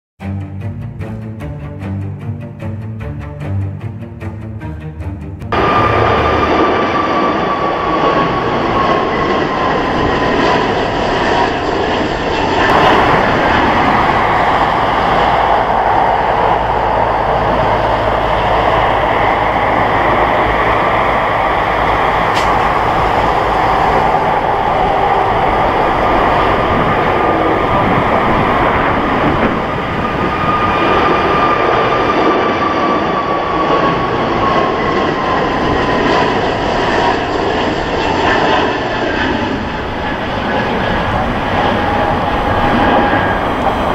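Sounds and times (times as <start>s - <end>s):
jet engine roar with fan whine: 5.4s - 43.9s.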